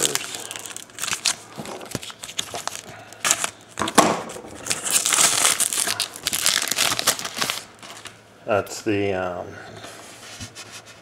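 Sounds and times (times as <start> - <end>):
paper wrappers crinkling: 0.0 - 8.2.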